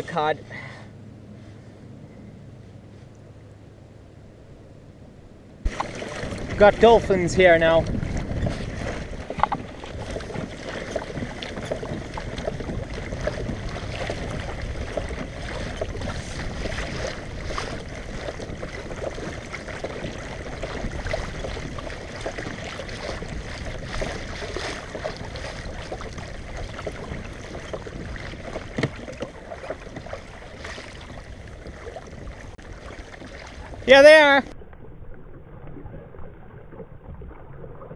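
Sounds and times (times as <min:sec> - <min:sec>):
wind on microphone: 0:05.6 - 0:34.5
water lapping against kayak hull: 0:05.6 - 0:37.9.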